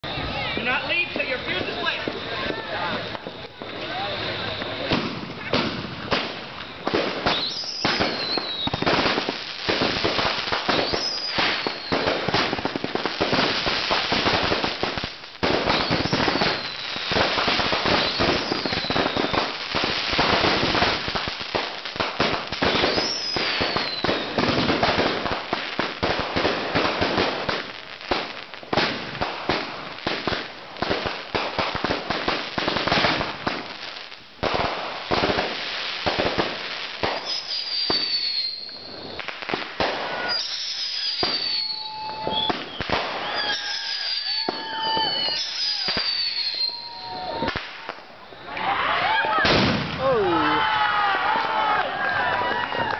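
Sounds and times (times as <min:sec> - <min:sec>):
fireworks banging and crackling: 0:00.0 - 0:52.9
firework whistle falling in pitch: 0:40.1 - 0:47.6.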